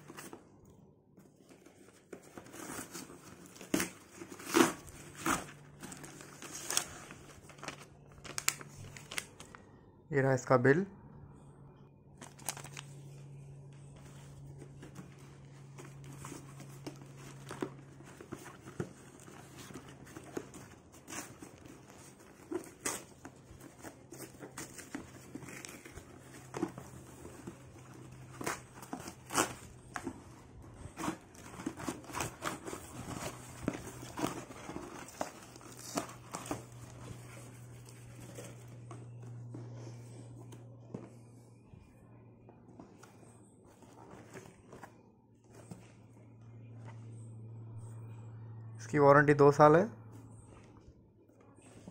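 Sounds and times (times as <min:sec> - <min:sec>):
steady low hum: 0:00.0 - 0:51.9
paper and cardboard tearing: 0:02.5 - 0:07.0.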